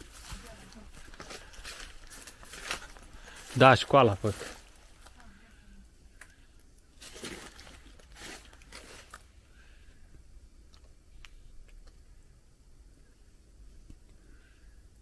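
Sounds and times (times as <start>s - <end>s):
footsteps crunching on debris: 0.0s - 5.2s, 7.0s - 9.3s
faint ticks: 12.9s - 15.0s.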